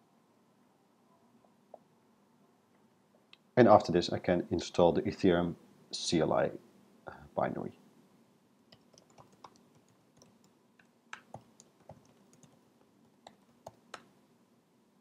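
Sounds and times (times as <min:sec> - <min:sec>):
keyboard keystrokes: 0:08.7 - 0:10.5.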